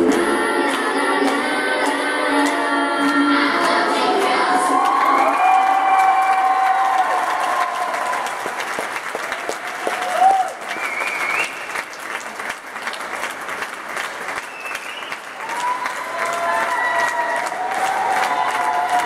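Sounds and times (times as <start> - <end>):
audience applauding: 0.1 - 19.0.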